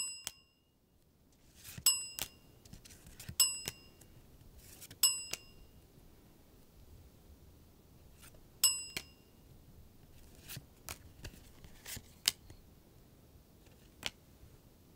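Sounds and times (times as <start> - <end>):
bell-like ding: 0.0 - 0.7, 1.9 - 2.4, 3.4 - 4.1, 5.0 - 5.7, 8.6 - 9.4
cards sliding and flipping: 1.4 - 3.8, 4.6 - 5.0, 10.2 - 12.6.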